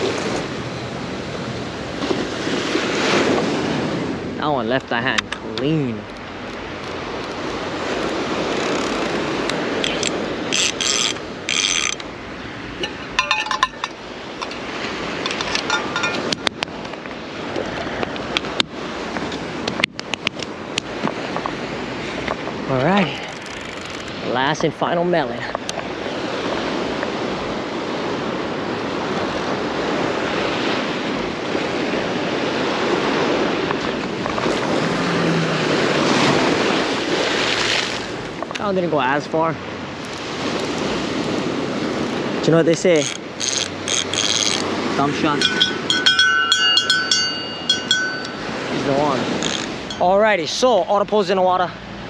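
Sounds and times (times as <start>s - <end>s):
surf: 0.0s - 52.0s
waves on rocky shore: 0.0s - 52.0s
wind: 0.0s - 52.0s
fishing reel clicks: 6.1s - 12.1s, 23.3s - 24.1s, 43.0s - 44.7s, 49.4s - 50.0s
fishing reel ratcheting: 6.5s - 12.1s, 23.2s - 24.2s, 42.9s - 44.7s, 49.3s - 50.0s.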